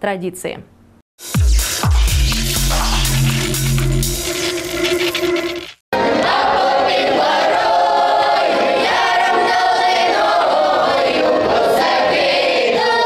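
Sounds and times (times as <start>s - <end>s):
children's choir singing unaccompanied: 6.0s - 13.0s.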